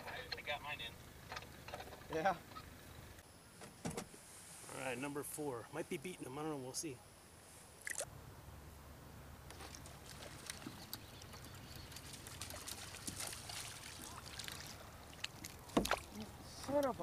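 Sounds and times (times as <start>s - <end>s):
low steady hum: 0.0s - 17.0s
fish splashing: 9.5s - 16.4s
trickling water: 9.5s - 17.0s.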